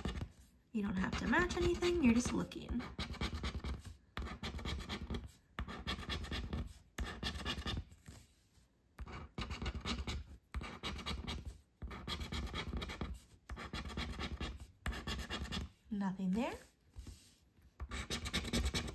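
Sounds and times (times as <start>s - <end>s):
coin scratching lottery ticket: 1.0s - 7.8s, 9.0s - 15.7s, 17.9s - 18.9s.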